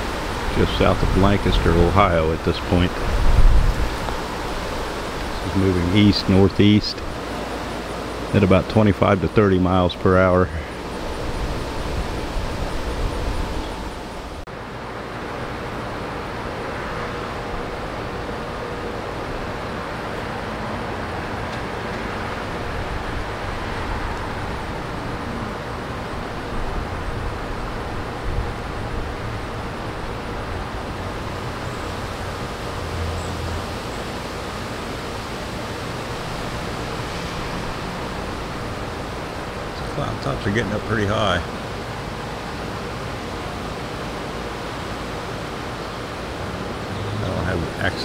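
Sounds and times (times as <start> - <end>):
wind rushing: 0.0 - 7.5, 10.7 - 14.4
wind gust rumbling on microphone: 0.0 - 14.4
steady outdoor background rush: 0.0 - 48.0.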